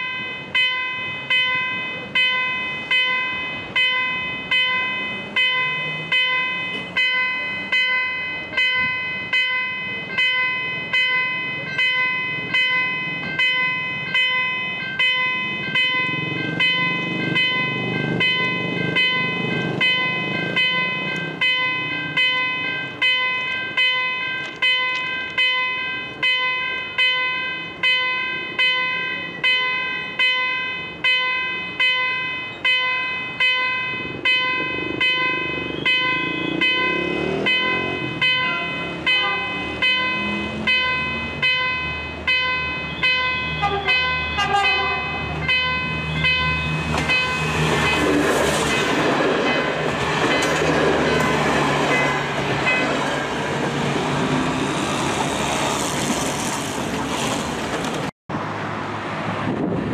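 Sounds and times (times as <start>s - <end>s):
level crossing warning chimes: 0.0s - 55.0s
train rushing past: 31.0s - 59.9s.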